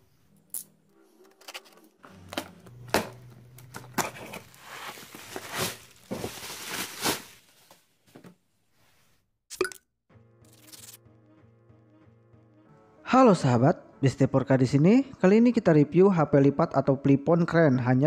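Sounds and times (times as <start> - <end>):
packaging rustling: 3.6 - 7.8.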